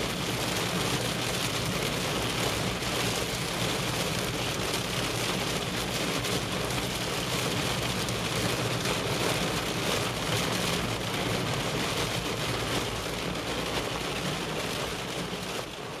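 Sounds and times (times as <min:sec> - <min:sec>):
heavy rain on car roof: 0:00.0 - 0:16.0.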